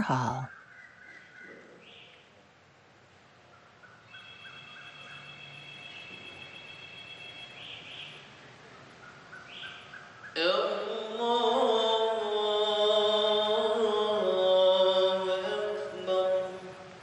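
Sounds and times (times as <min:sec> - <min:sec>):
faint chirps: 0:03.4 - 0:10.8
man chanting prayer: 0:10.4 - 0:17.0.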